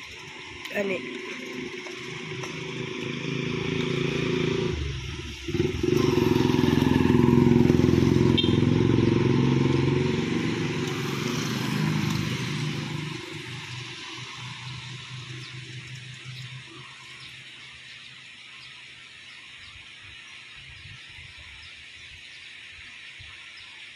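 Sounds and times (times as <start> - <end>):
turboprop engines droning: 0.0 - 17.7.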